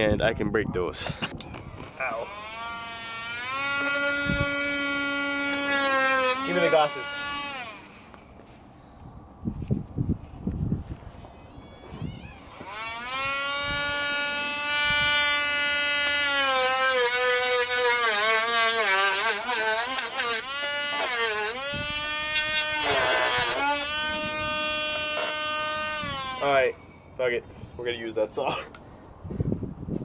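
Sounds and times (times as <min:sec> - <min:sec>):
rotary tool whining: 0:01.4 - 0:08.5, 0:11.0 - 0:27.1
grinding bursts: 0:01.6 - 0:08.2, 0:11.6 - 0:26.8.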